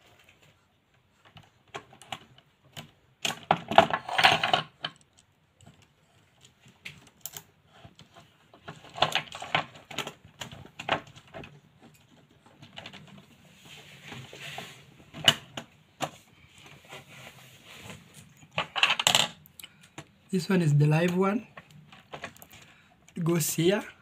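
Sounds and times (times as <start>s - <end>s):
plastic clicking and rattling: 1.2s - 13.4s, 21.5s - 23.2s.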